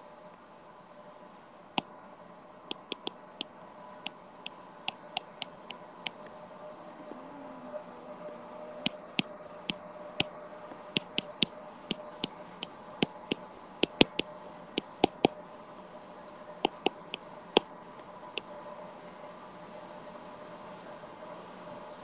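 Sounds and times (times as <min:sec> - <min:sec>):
faint steady hum: 0:00.0 - 0:22.0
stylus tapping on glass screen: 0:02.7 - 0:03.1, 0:04.9 - 0:05.6, 0:11.0 - 0:12.3, 0:13.0 - 0:14.2, 0:14.8 - 0:15.3, 0:16.7 - 0:17.2.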